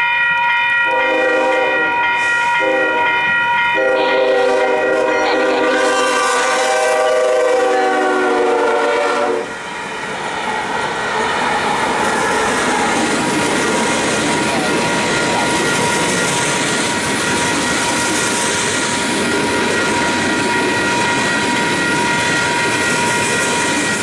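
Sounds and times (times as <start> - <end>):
crossing bell ringing: 0.0 - 11.4, 12.1 - 24.0
freight train rolling past: 0.0 - 24.0
locomotive horn blasts: 0.9 - 2.0, 2.6 - 3.2, 3.8 - 9.6.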